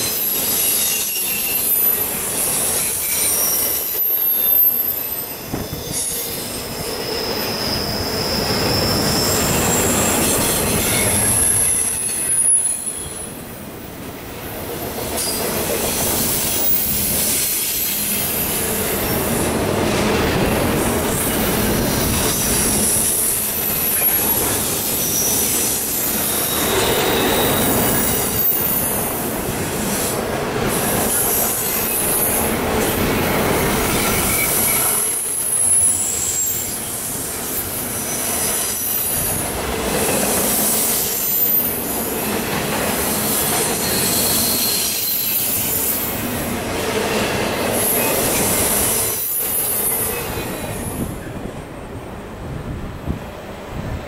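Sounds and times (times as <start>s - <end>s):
high-pitched wheel squeal: 0.0s - 13.3s, 22.2s - 29.0s, 33.8s - 39.4s, 43.3s - 46.2s
train wheels clattering on rail: 0.0s - 13.4s, 14.6s - 54.0s.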